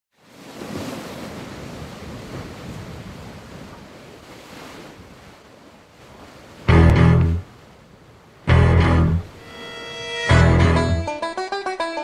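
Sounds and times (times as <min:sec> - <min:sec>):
ocean waves washing: 0:00.2 - 0:11.2
low bowed string chord: 0:06.7 - 0:07.4, 0:08.5 - 0:11.4.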